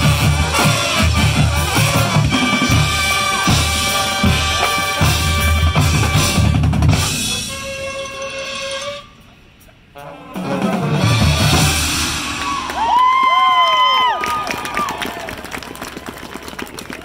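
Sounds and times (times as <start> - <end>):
bass and snare drums beating: 0.0 - 7.9, 10.4 - 13.9
marching band playing: 0.0 - 16.9.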